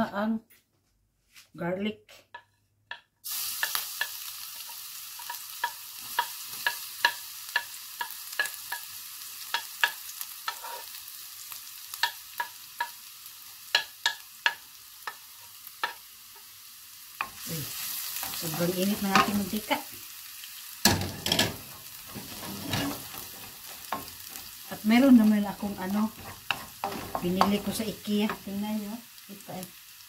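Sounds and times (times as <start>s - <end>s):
garlic sizzling in hot oil: 2.9s - 30.0s
wooden spoon scraping a wok: 10.4s - 11.0s, 21.1s - 28.9s.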